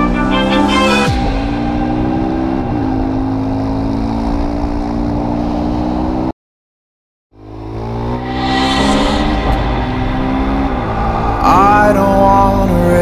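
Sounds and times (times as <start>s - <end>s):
motorcycle engine cruising: 0.0s - 6.3s, 7.4s - 8.4s
wind noise: 8.2s - 13.0s.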